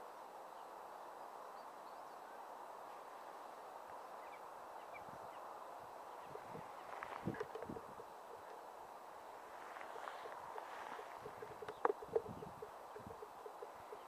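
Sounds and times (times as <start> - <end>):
open-air hiss: 0.0 - 14.0
soft low knocks: 9.8 - 14.0.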